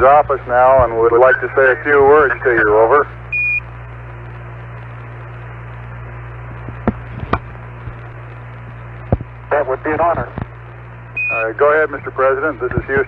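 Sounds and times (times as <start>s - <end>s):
radio hiss and hum: 0.0s - 13.0s.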